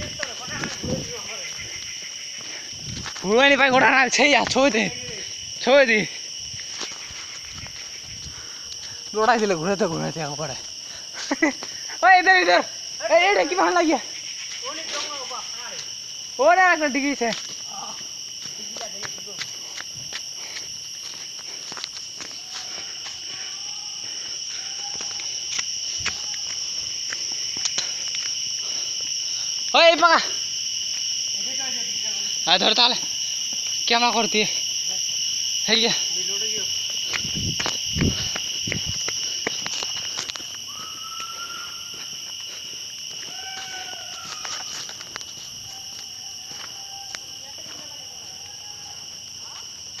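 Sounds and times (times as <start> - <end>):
footsteps on dry leaves: 0.0 - 3.5, 6.2 - 9.8, 17.1 - 23.6, 36.6 - 47.8
high-pitched insect chorus: 0.0 - 50.0
long drawn-out calls: 40.6 - 44.8.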